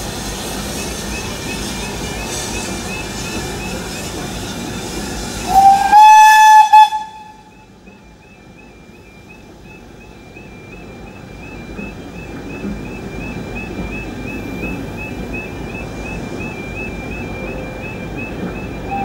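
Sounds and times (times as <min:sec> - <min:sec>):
steam locomotive whistle: 0:00.0 - 0:09.2, 0:10.3 - 0:19.0
train rumble: 0:00.0 - 0:19.0
level crossing warbling alarm: 0:07.4 - 0:19.0.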